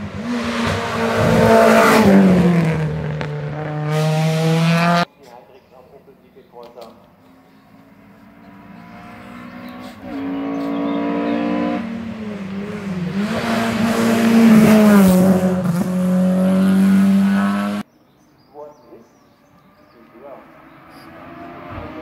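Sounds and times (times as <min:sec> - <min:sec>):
race car engine at full throttle: 0:00.0 - 0:05.1, 0:07.3 - 0:17.8, 0:20.4 - 0:22.0.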